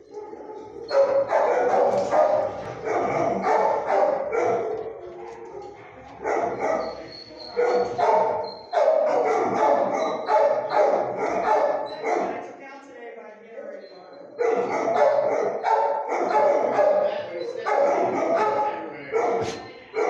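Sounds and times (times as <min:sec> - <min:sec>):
dogs barking: 0:00.0 - 0:12.5, 0:14.2 - 0:20.0.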